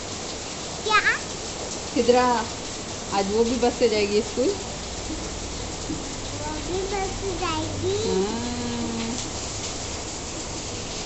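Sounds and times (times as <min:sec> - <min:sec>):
rain hissing: 0:00.0 - 0:11.0
child's drawn-out vocal sound: 0:06.4 - 0:09.2.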